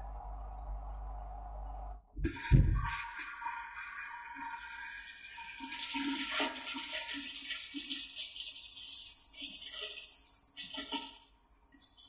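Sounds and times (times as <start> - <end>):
muffled water spraying in dishwasher: 2.2 - 12.0.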